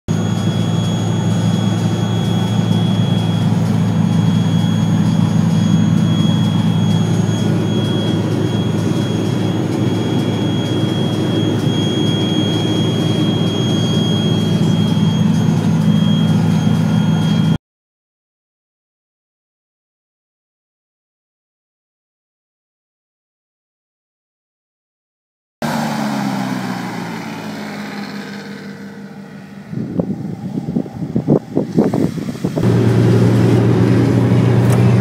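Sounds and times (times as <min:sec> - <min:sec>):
high whine: 0:00.1 - 0:17.6, 0:25.6 - 0:35.0
hovercraft engine drone: 0:00.1 - 0:17.6, 0:25.6 - 0:35.0.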